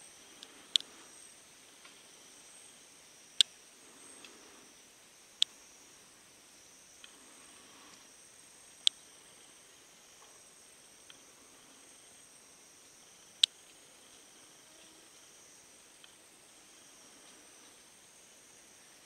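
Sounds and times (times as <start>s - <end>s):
insects droning: 0.0s - 19.0s
faint ticks: 0.3s - 2.1s, 3.3s - 5.6s, 7.0s - 8.1s, 8.7s - 9.5s, 10.1s - 18.6s.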